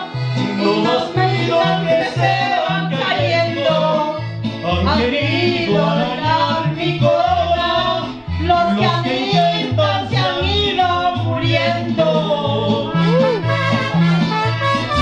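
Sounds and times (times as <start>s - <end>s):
bass guitar notes: 0.0s - 15.0s
mariachi band with singing: 0.0s - 15.0s
trumpet: 12.9s - 15.0s.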